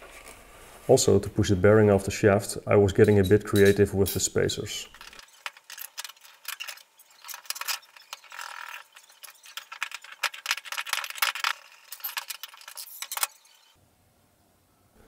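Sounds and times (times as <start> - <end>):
metal tools clinking: 3.0 - 13.8
metal scraping: 4.9 - 13.8.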